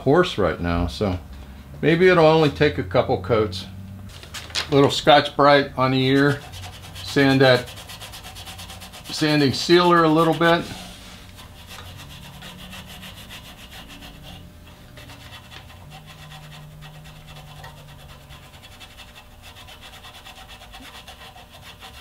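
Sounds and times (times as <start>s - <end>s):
abrasive pad rubbing on wood: 5.8s - 22.0s.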